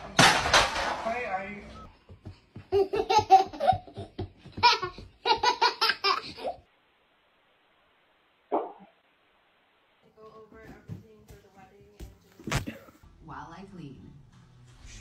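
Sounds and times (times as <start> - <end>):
toddler giggling: 2.6 - 6.6.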